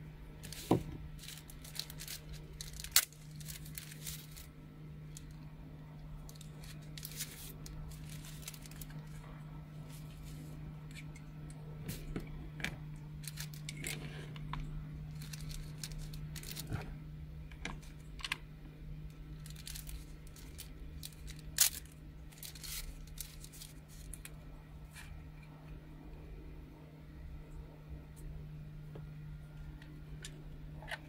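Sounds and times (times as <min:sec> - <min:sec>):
steady low hum: 0:00.0 - 0:31.0
plastic wrapping crinkling: 0:00.4 - 0:04.5, 0:06.2 - 0:09.3, 0:13.2 - 0:14.2, 0:15.1 - 0:16.9, 0:19.4 - 0:25.0.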